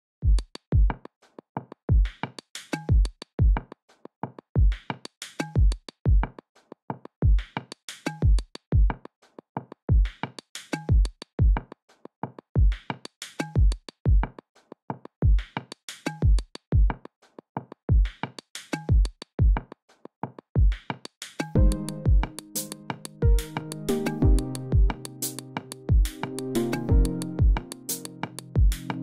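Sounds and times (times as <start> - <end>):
electronic drum-machine beat: 21.6 - 29.0.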